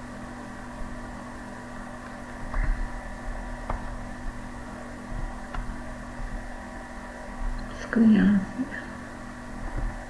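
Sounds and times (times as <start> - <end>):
electrical hum and hiss: 0.0 - 10.0.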